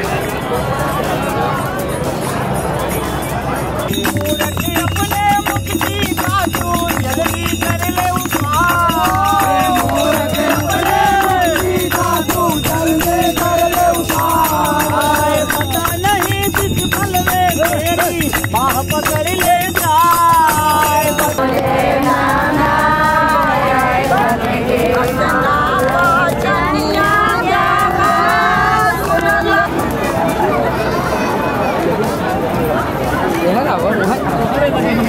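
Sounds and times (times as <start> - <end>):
small hand cymbals: 1.6 - 29.9
men singing devotional song: 3.9 - 29.9
hand clapping: 3.9 - 30.7
hand drum: 3.9 - 31.1.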